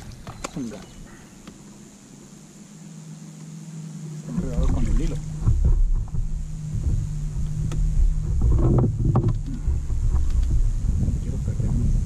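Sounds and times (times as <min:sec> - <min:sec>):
wind rumbling on microphone: 0:04.2 - 0:12.0
knocks on wooden boat: 0:04.6 - 0:11.0.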